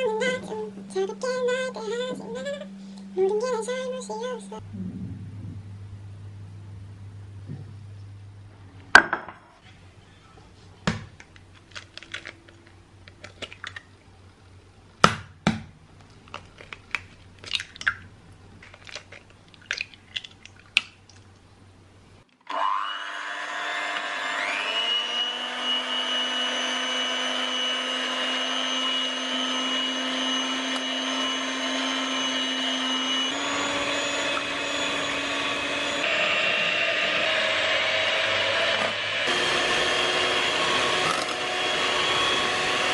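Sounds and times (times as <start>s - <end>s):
electric hand mixer whirring: 22.5s - 42.9s.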